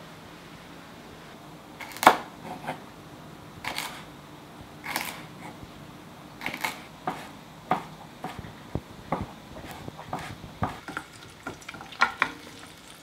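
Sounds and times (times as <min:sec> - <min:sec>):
knife chopping on wooden board: 0:06.4 - 0:08.5, 0:09.1 - 0:11.0.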